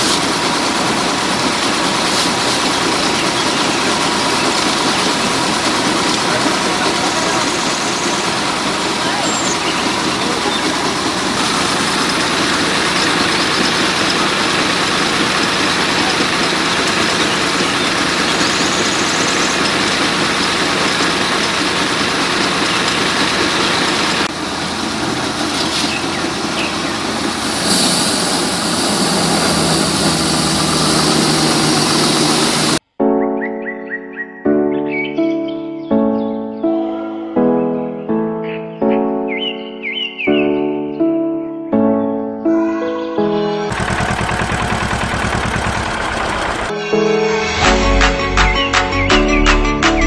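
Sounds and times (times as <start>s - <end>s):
grain mill running: 0.0s - 32.8s, 43.7s - 46.7s.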